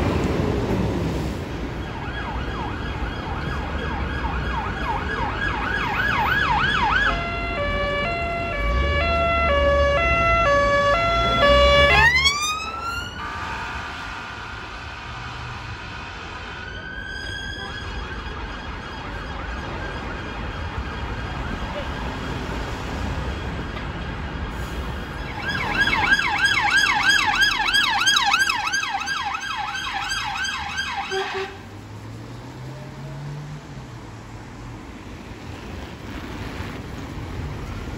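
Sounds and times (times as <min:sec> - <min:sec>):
emergency vehicle siren: 0:00.0 - 0:33.8
engine and traffic rumble: 0:00.0 - 0:37.9
siren rising wail: 0:01.7 - 0:31.6.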